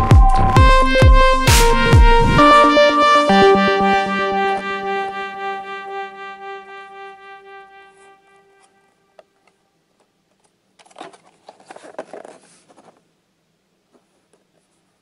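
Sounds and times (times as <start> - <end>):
held synthesizer chord: 0.0 - 8.9
plastic packaging crinkling: 10.8 - 13.0.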